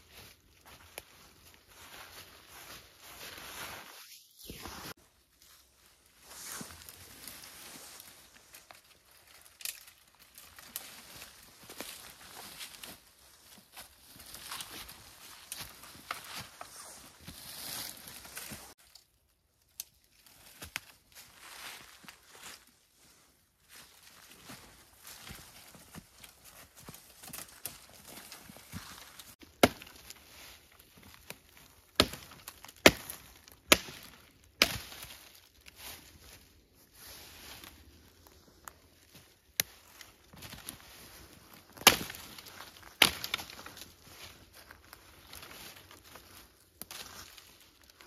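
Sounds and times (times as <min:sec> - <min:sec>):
footsteps in dry leaves: 0:00.0 - 0:18.8, 0:20.1 - 0:48.0
sickle chopping dead wood: 0:29.4 - 0:30.2, 0:31.0 - 0:35.3, 0:41.6 - 0:43.8.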